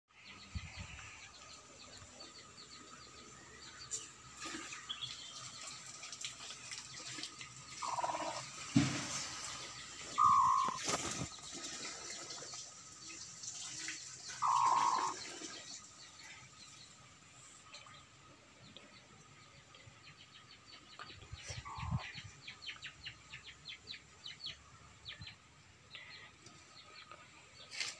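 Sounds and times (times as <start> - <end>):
hens calling: 7.8 - 8.6, 10.0 - 11.2, 14.4 - 15.2, 21.4 - 22.2.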